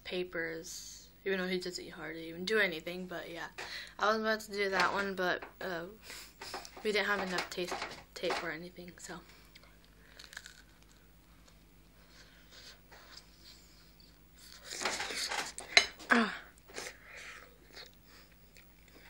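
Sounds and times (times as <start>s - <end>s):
person biting and chewing: 10.1s - 11.6s.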